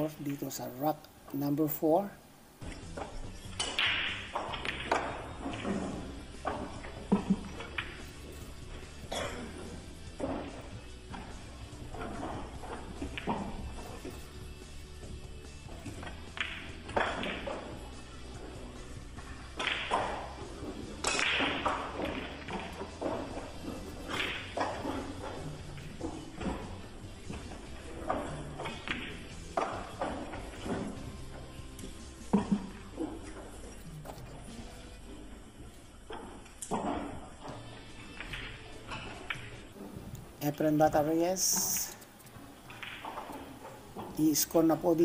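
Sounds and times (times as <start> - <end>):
background music: 0.0 - 45.0
pool balls clacking: 0.0 - 45.0
cue striking ball: 2.6 - 34.8, 42.1 - 44.2.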